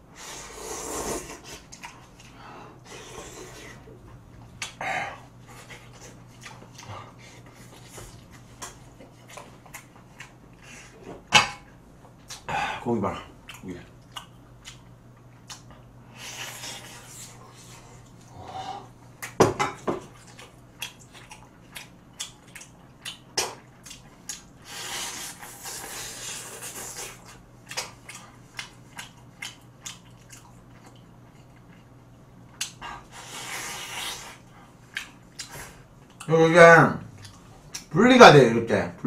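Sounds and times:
slurping: 0:00.2 - 0:03.9, 0:24.6 - 0:27.4
chewing meat off a bone: 0:04.1 - 0:10.7, 0:13.3 - 0:16.0, 0:20.0 - 0:24.6, 0:26.7 - 0:32.8.

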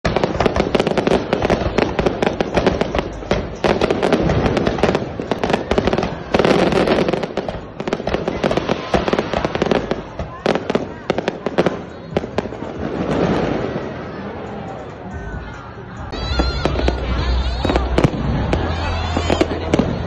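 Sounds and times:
fireworks bangs and crackles: 0:00.0 - 0:15.0, 0:16.0 - 0:20.0.

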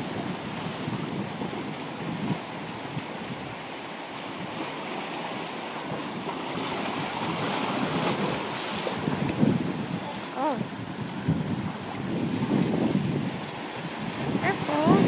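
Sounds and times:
ocean surf on rocks: 0:00.0 - 0:15.0.

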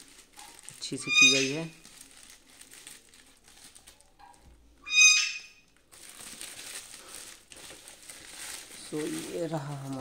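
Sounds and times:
plastic mailer crinkling: 0:00.0 - 0:04.2, 0:05.7 - 0:10.0
high-pitched animal call: 0:01.0 - 0:01.7, 0:04.8 - 0:05.6.

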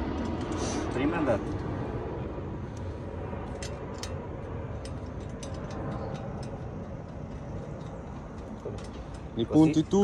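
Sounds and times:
steady low rumble: 0:00.0 - 0:10.0
hand tools clicking and tapping: 0:04.8 - 0:09.4.

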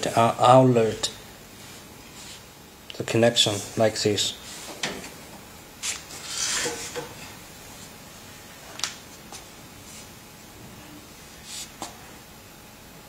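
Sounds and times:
hoses scraping on tiled floor: 0:05.8 - 0:07.0.

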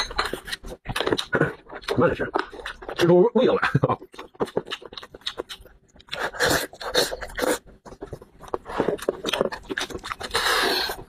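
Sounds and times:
wet chewing and lip smacks: 0:04.1 - 0:11.0.

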